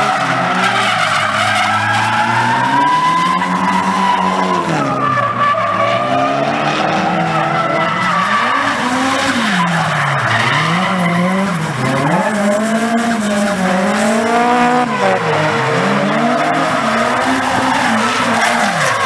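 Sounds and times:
car engine revving: 0.0 - 19.0
tyres squealing on asphalt: 0.0 - 19.0.

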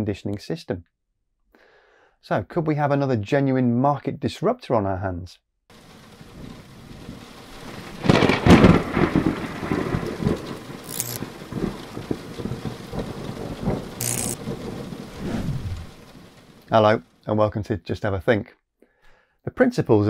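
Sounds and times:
rain: 5.7 - 17.4
rolling thunder: 6.2 - 16.8
loud thunderclap: 6.3 - 16.8
short sharp crackles: 10.8 - 11.4, 14.0 - 16.8.

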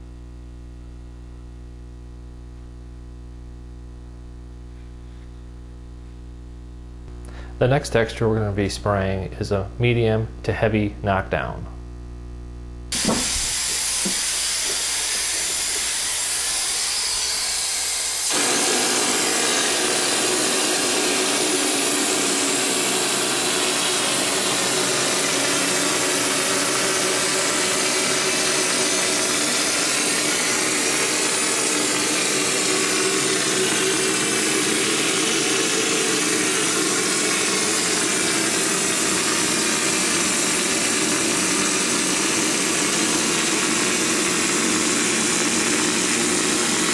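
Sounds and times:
texture spray gun hissing: 12.9 - 46.9.

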